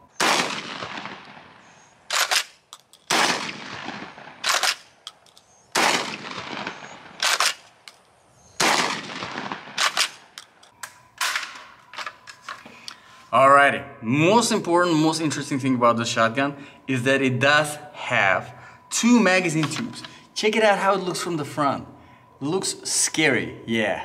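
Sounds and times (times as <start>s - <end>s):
shotgun shots with echo: 0.2s - 1.5s, 3.1s - 4.8s, 5.7s - 7.6s, 8.6s - 10.2s.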